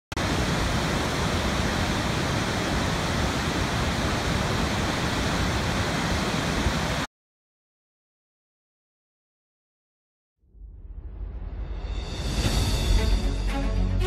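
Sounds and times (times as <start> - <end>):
waterfall rushing: 0.1 - 7.1.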